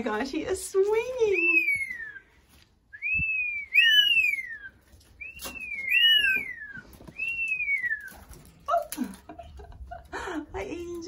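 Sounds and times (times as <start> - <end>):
parrot whistling: 1.4 - 2.2, 3.0 - 8.1.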